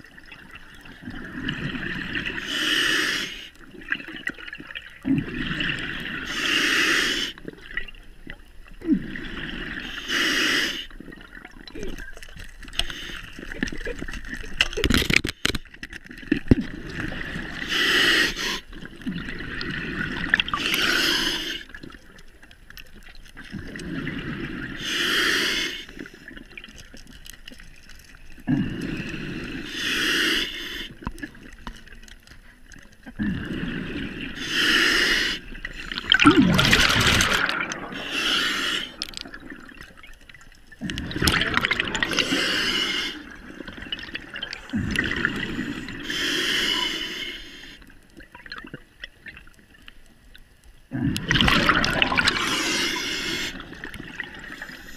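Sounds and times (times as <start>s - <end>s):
bubbles: 0.0s - 2.4s, 3.6s - 6.3s, 10.9s - 15.3s, 16.0s - 17.7s, 18.7s - 24.8s, 35.4s - 46.0s, 48.1s - 49.8s, 50.9s - 54.9s
diver breathing through regulator: 2.3s - 3.6s, 6.2s - 7.4s, 9.4s - 11.0s, 17.0s - 18.8s, 19.5s - 21.8s, 23.7s - 26.3s, 28.5s - 31.2s, 33.2s - 39.3s, 40.9s - 43.4s, 44.4s - 47.9s, 51.2s - 54.9s.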